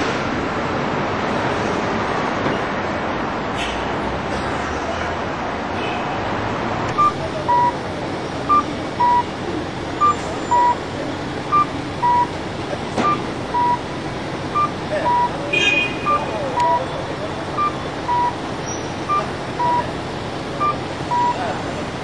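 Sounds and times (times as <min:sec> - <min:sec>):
street traffic noise: 0:00.0 - 0:22.0.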